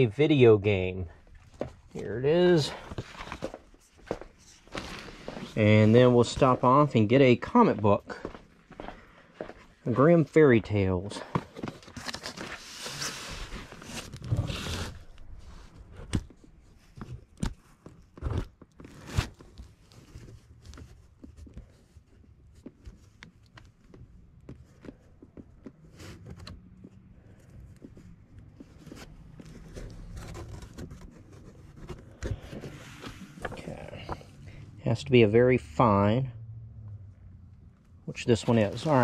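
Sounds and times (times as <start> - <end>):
comic book rustling: 1.0 - 7.0, 11.0 - 34.6, 38.2 - 39.0.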